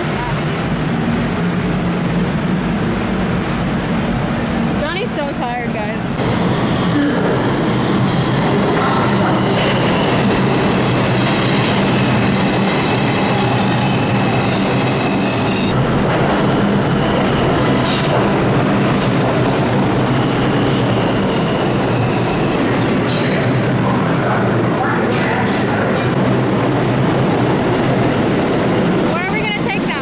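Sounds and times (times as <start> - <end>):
subway train rumbling on rails: 0.0 - 30.0
high wheel squeal: 20.1 - 23.4.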